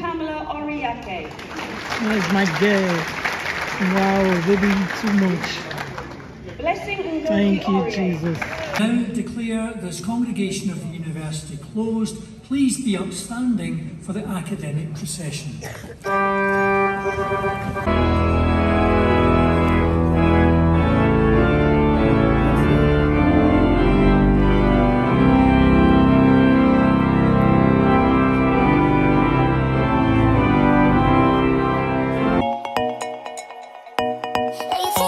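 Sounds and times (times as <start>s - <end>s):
organ playing slow chords: 16.0s - 35.0s
deep organ bass notes: 16.1s - 32.6s.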